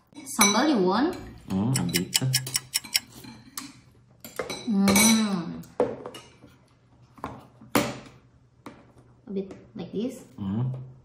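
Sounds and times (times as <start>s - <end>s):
spoons clinking on ceramic bowls: 0.2s - 5.4s.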